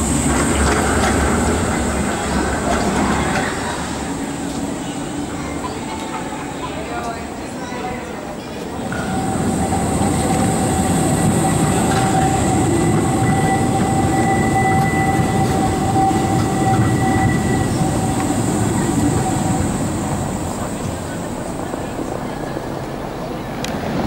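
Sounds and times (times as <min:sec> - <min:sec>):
tram wheels rumbling on rails: 0:00.0 - 0:24.0
high-pitched wheel squeal: 0:09.0 - 0:20.0.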